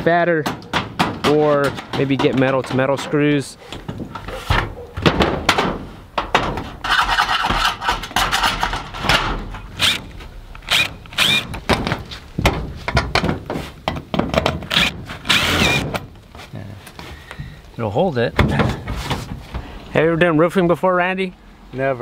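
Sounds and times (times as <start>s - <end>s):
knocks on metal roofing: 0.4s - 9.6s, 11.5s - 15.1s
scraping on metal: 5.8s - 14.0s.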